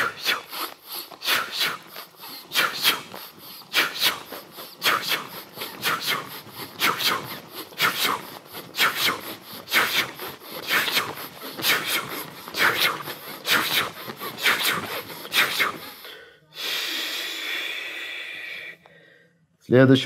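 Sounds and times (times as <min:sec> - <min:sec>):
person breathing: 0:00.0 - 0:19.5
clothing rustling: 0:00.6 - 0:15.8.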